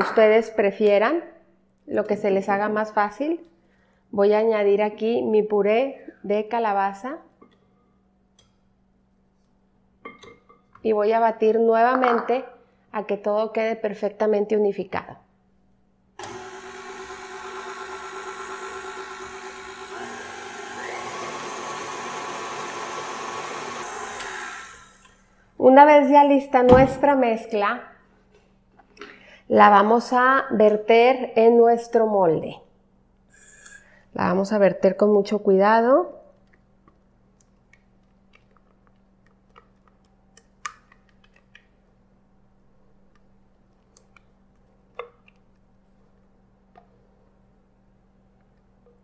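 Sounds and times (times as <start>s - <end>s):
stand mixer running: 16.2s - 25.0s.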